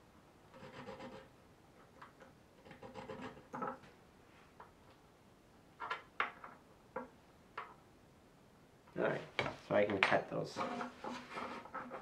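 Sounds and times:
file rasping on metal threads: 0.5s - 1.3s, 2.6s - 3.6s, 10.6s - 12.0s.

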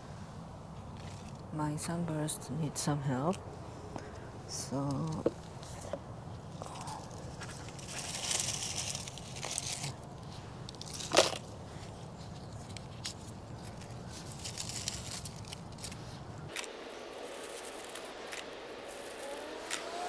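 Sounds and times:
dry leaves rustling and crunching: 4.8s - 20.0s.

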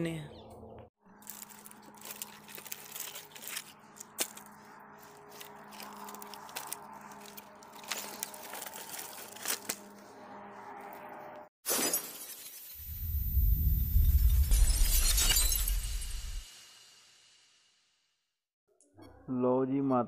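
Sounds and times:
wooden logs cracking and scraping: 1.1s - 10.1s
glass shattering: 11.7s - 12.9s, 14.3s - 16.4s.

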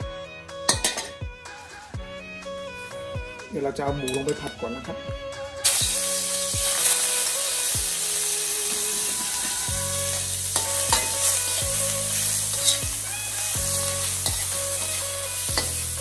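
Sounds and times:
meat sizzling in hot oil: 5.6s - 16.0s
metal spatula scraping a wok: 8.5s - 16.0s.

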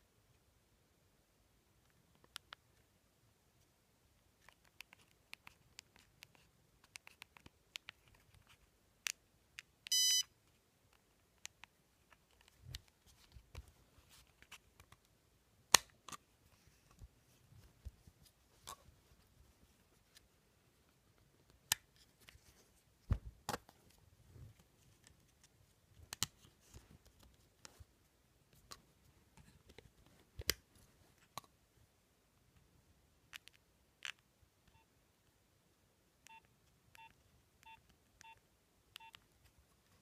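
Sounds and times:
keypad beeps: 9.9s - 10.3s, 36.2s - 38.4s, 39.0s - 39.2s.

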